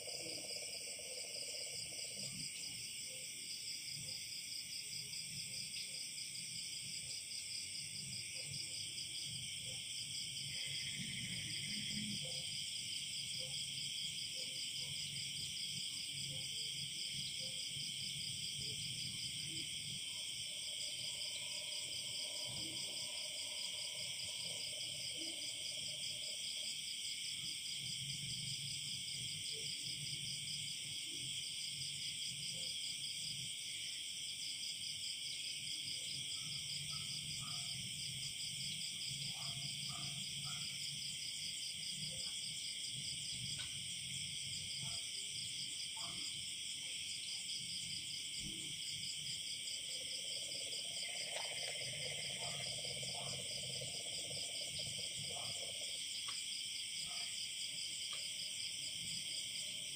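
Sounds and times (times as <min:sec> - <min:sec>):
crickets trilling: 0:35.1 - 0:59.9.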